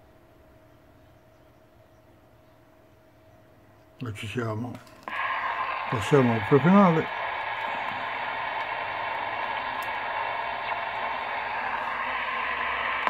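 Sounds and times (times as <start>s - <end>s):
radio static hiss: 4.0s - 13.0s.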